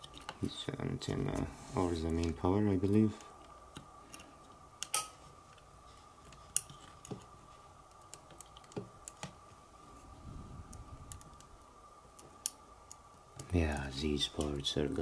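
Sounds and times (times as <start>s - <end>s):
fingers clicking on circuit board: 10.7s - 11.5s.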